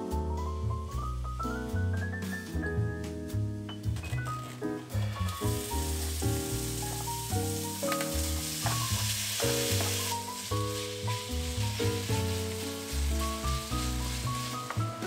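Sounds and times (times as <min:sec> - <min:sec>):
background music: 0:00.0 - 0:15.0
meat sizzling in a wok: 0:04.9 - 0:15.0.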